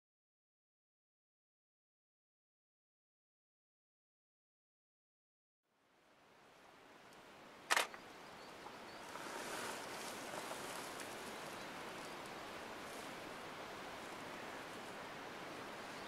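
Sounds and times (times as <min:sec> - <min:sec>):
background hiss: 0:05.7 - 0:16.0
camera shutter click: 0:07.7 - 0:08.0.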